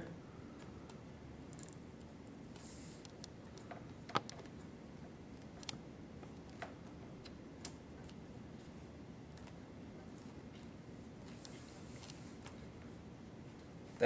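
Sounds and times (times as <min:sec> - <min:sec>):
faint room hiss: 0:00.0 - 0:14.0.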